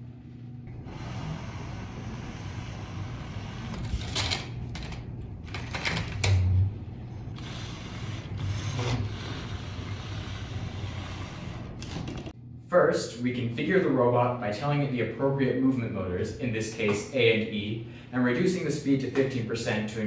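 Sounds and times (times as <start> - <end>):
small electric motors whirring: 0.7 - 4.3, 7.3 - 12.3.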